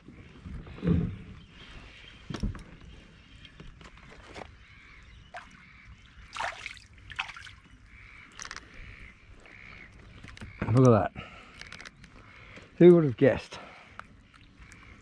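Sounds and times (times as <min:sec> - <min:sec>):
fish splashing at water surface: 0:06.3 - 0:07.6.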